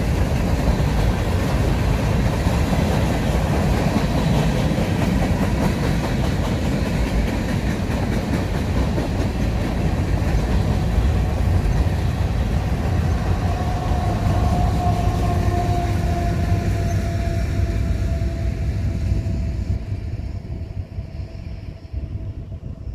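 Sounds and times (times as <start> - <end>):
wheel clickety-clack: 0.0 - 13.1
diesel locomotive: 0.0 - 22.9
freight train cars rolling past: 0.0 - 22.9.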